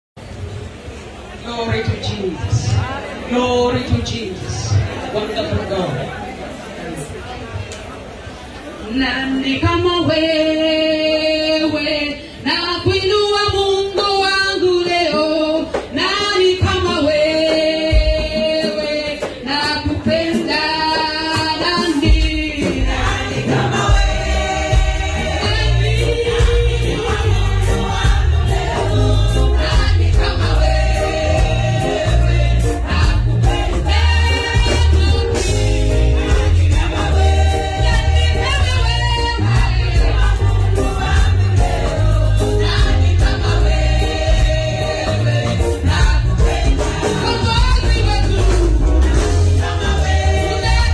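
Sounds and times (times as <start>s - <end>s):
women's choir singing gospel: 8.9s - 50.9s
amplified band: 16.4s - 50.9s.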